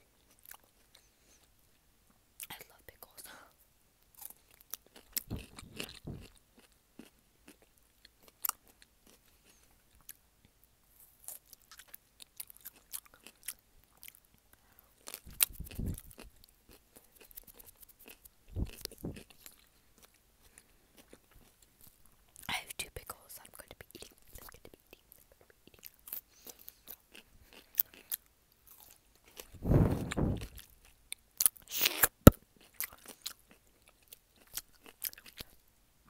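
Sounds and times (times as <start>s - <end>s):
pickle crunching bites: 4.2s - 9.2s
wet mouth clicks: 15.1s - 16.3s, 17.0s - 19.4s.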